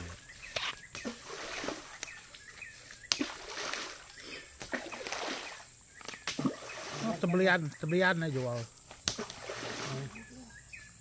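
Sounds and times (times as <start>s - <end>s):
river water splashing: 0.0s - 10.5s.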